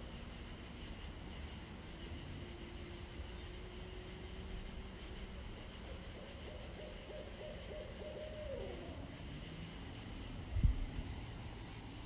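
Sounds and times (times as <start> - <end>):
background hiss: 0.0 - 12.0
owl hooting: 5.5 - 9.3.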